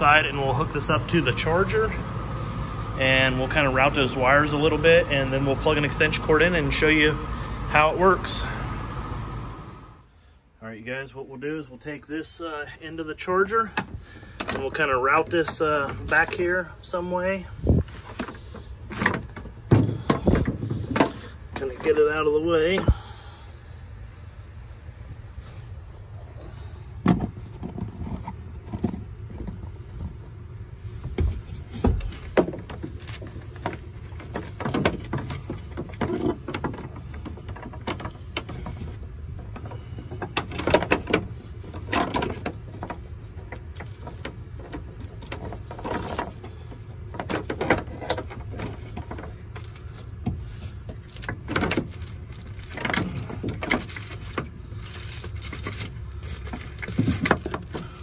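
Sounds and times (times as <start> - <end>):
steady low rumble: 0.0 - 36.0
wiring knocks and clicks: 18.0 - 22.0, 31.0 - 58.0.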